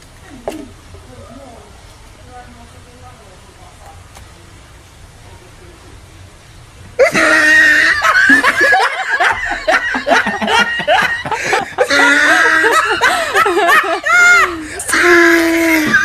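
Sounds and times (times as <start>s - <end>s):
people laughing loudly: 7.0s - 16.0s.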